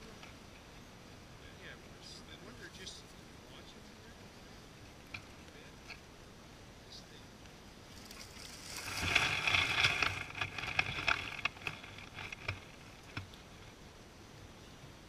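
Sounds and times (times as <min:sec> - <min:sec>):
dry grass and leaves rustling: 0:07.5 - 0:14.6
hand crackling in leaf litter: 0:07.9 - 0:13.0.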